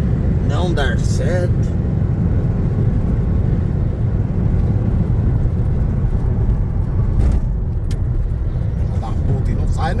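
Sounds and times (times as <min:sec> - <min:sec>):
car road and engine rumble: 0:00.0 - 0:10.0.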